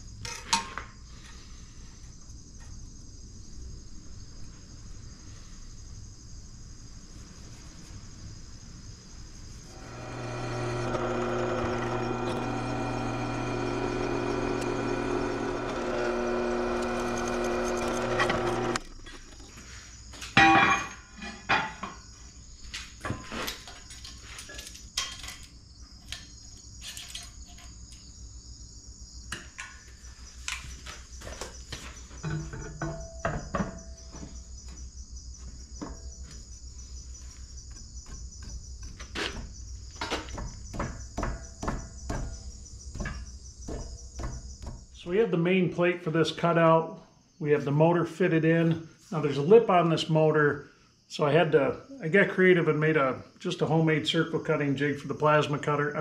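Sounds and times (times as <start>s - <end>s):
loud pitched hum: 9.7s - 18.8s
metal knocks and clanks: 32.2s - 34.4s, 37.7s - 44.9s.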